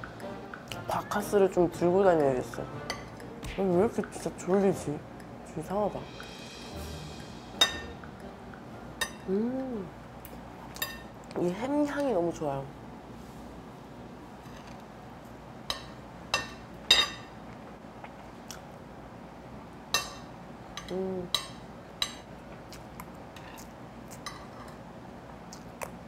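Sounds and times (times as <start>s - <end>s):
cutlery clinking on a plate: 15.7s - 17.3s, 23.4s - 24.8s.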